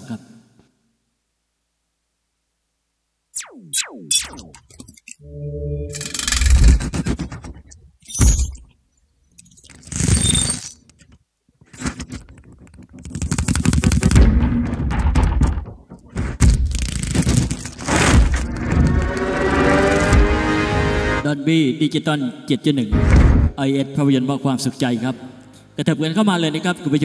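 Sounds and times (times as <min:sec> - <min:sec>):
high ringing tone: 0:03.4 - 0:06.6.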